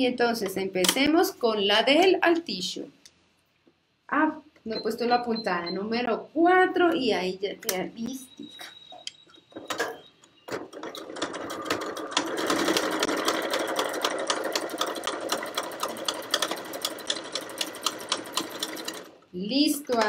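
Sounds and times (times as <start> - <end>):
sewing machine stitching: 9.6 - 19.2.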